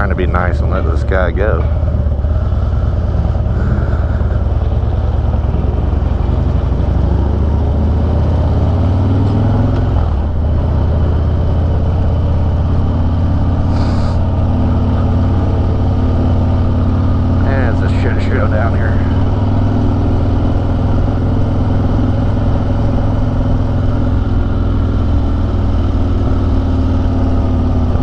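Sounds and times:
motorcycle engine at low speed: 0.0s - 28.0s
short hiss: 13.7s - 14.2s.

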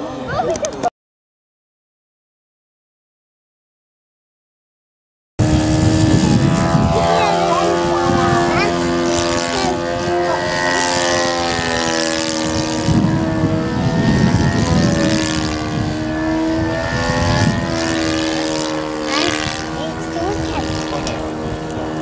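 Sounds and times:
low rumble: 5.4s - 22.0s
model aeroplane engine buzzing: 5.4s - 22.0s.

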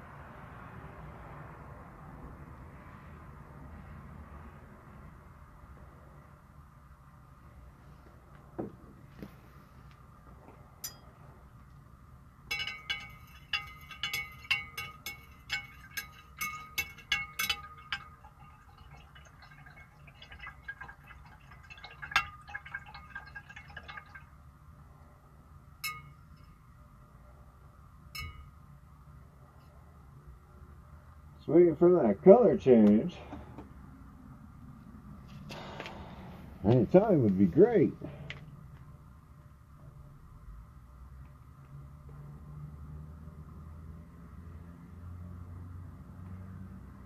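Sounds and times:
glass rod clinking in beaker: 10.8s - 11.2s, 12.5s - 24.2s, 25.8s - 26.6s, 28.2s - 28.6s.

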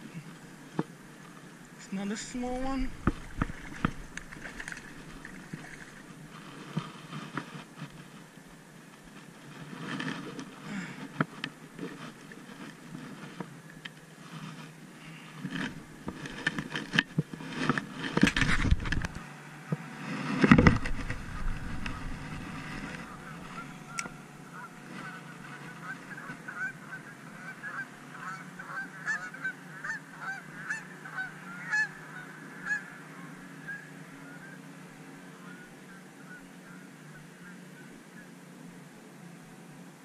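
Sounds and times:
geese honking: 20.7s - 38.3s.

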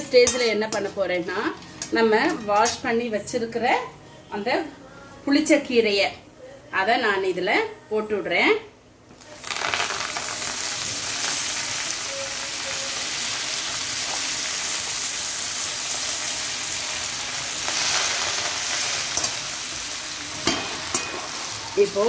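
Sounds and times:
leaves sizzling in hot oil: 9.2s - 22.0s.

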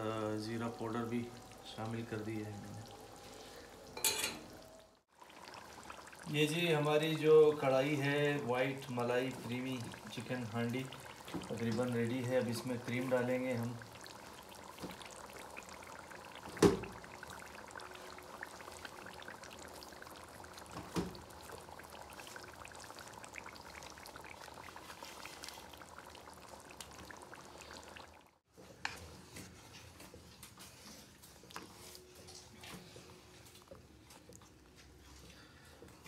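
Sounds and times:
pan sizzling: 0.0s - 28.3s.

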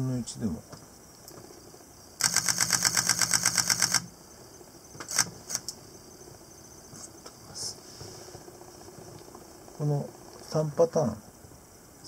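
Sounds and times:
camera shutter burst: 2.2s - 4.1s, 5.0s - 5.7s.

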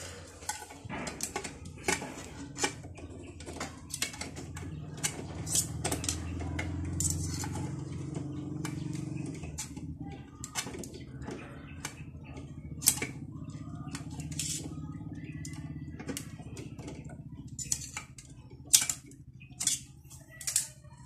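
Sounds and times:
knife scraping metal parts: 0.0s - 8.0s, 13.9s - 14.7s, 16.9s - 20.8s
small metal parts clicking: 0.1s - 11.0s, 11.8s - 13.2s, 13.8s - 21.0s.

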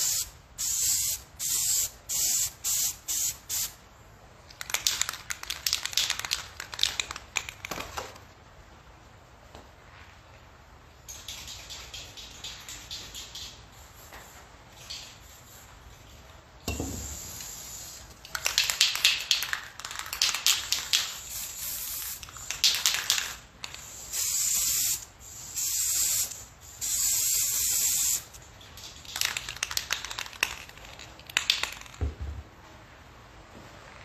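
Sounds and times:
aerosol spray can hissing: 0.0s - 3.8s, 17.0s - 18.1s, 20.7s - 28.3s.

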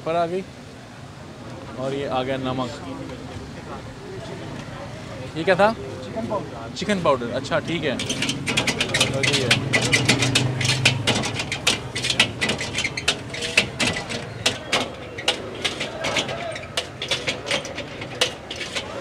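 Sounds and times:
metal utensils clanking on a wok: 7.4s - 19.0s.

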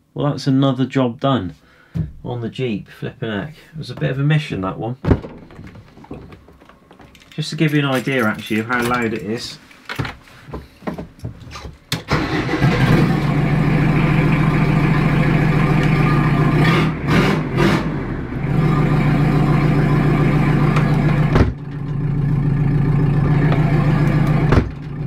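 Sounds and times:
diesel engine idling loud: 12.2s - 17.0s, 17.9s - 25.0s.

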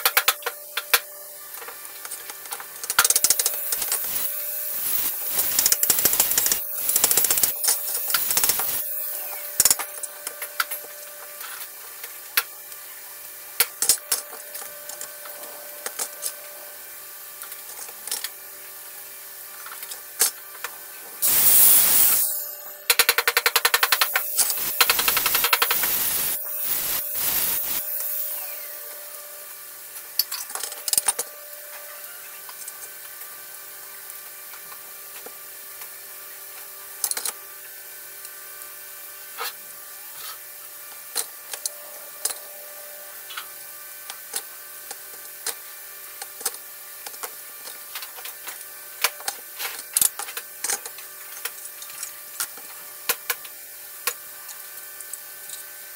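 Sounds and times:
rapid buzzing ticks: 3.2s - 8.8s, 23.1s - 27.9s
loud hissing burst: 21.2s - 22.4s, 24.0s - 28.8s.

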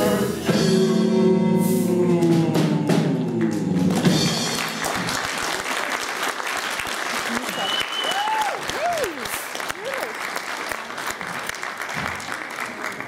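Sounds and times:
drum strikes: 0.0s - 5.2s
audience applause: 3.3s - 13.0s.

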